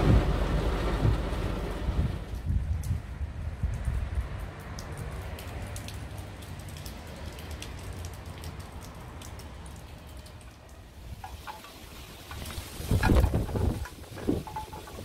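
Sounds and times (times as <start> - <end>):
low steady rumble: 0.0 - 4.6
raindrops ticking: 0.0 - 15.0.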